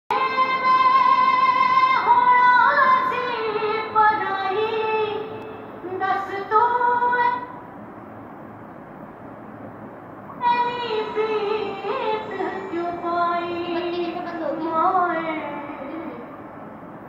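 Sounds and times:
low steady hiss: 0:00.1 - 0:17.0
high voice singing held notes: 0:10.4 - 0:16.5.

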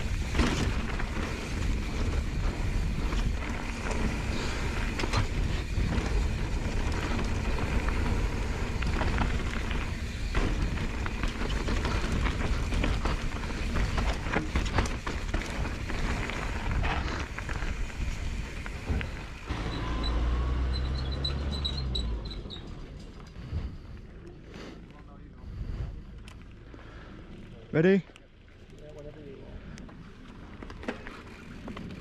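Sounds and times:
wind rumble on microphone: 0:00.0 - 0:19.4
tyres crunching over stones: 0:00.0 - 0:19.5
bike rattling over bumps: 0:00.0 - 0:32.0.

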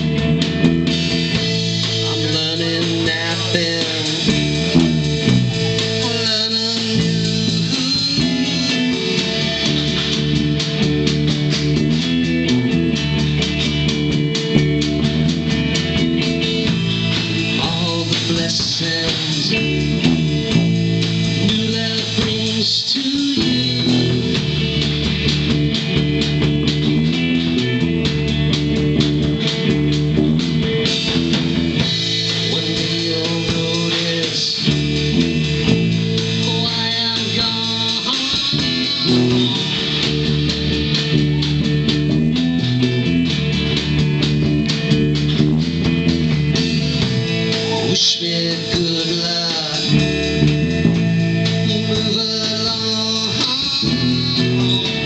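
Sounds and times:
bass guitar: 0:00.0 - 0:55.0
electric guitar: 0:00.0 - 0:55.0
live rock band playing: 0:00.0 - 0:55.0.

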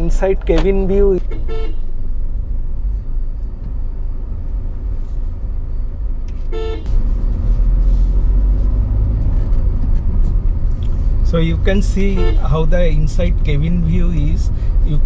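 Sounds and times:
car engine and road rumble: 0:00.0 - 0:15.0
car horn toot: 0:01.2 - 0:01.9, 0:06.5 - 0:06.9, 0:11.8 - 0:13.0.

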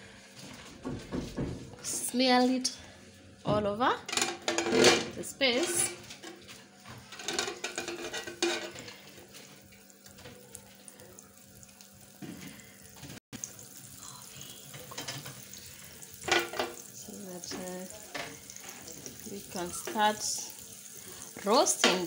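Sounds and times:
metal spatula scraping grill pan: 0:07.1 - 0:09.4.

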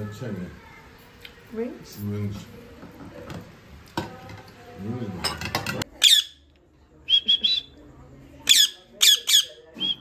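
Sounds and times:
parakeet chirps: 0:06.0 - 0:06.4, 0:08.4 - 0:10.0
parakeet screeching: 0:06.0 - 0:06.4, 0:08.4 - 0:10.0.

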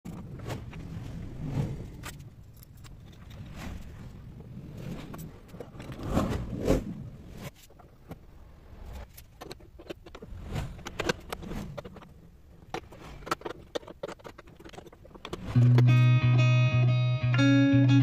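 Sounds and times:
clamps scraping and clicking on guitar: 0:09.2 - 0:16.5.

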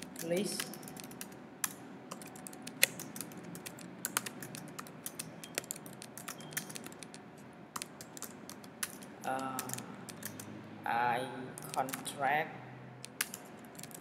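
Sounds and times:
computer keyboard typing: 0:00.0 - 0:10.5, 0:11.6 - 0:12.2, 0:13.0 - 0:14.0.

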